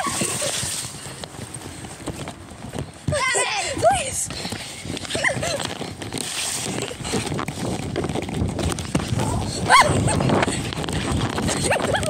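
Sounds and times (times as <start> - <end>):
hurried footsteps on stone: 0.0 - 12.0
wind on microphone: 0.0 - 12.0
handling noise on microphone: 4.2 - 12.0.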